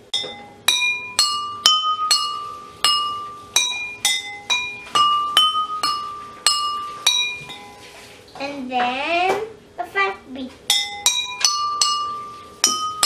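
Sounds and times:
pencil tapping water glasses: 0:00.1 - 0:07.8, 0:10.7 - 0:13.0.

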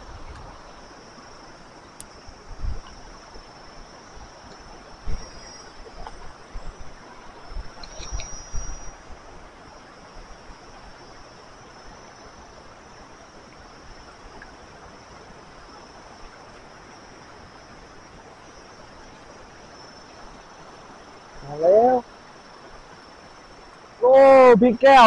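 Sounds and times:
fast-flowing water rushing: 0:00.0 - 0:25.0
insects buzzing: 0:00.0 - 0:25.0.

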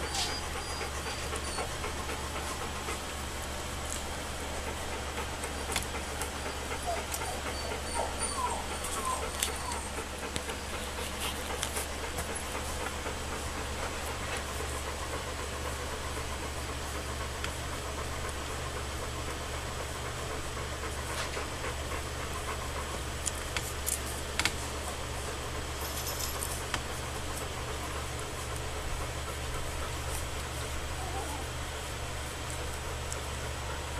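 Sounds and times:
puppies squeaking and whimpering: 0:00.0 - 0:03.3, 0:04.7 - 0:13.5, 0:30.9 - 0:31.6
steady low hum: 0:00.0 - 0:33.9.

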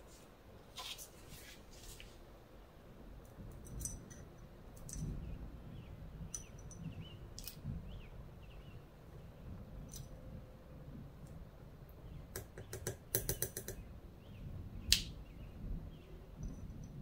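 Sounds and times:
tweezers tapping glass jar: 0:06.4 - 0:06.8.

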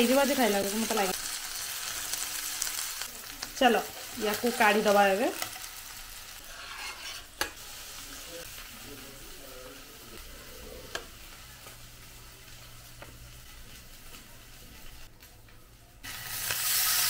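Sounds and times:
fish sizzling in a pan: 0:00.0 - 0:15.1, 0:16.0 - 0:17.0.

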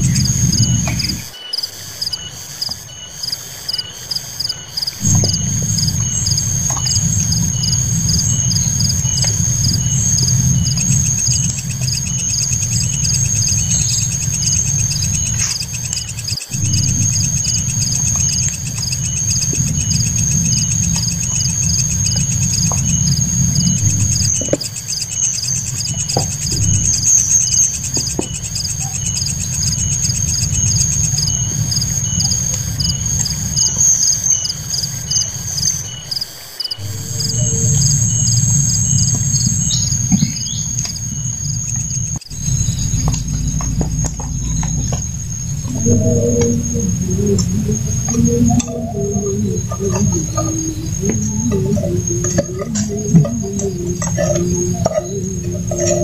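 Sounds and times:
low rumble: 0:00.0 - 0:01.3, 0:05.0 - 0:24.5, 0:25.2 - 0:33.3, 0:36.8 - 0:56.0
insects trilling: 0:00.0 - 0:56.0.

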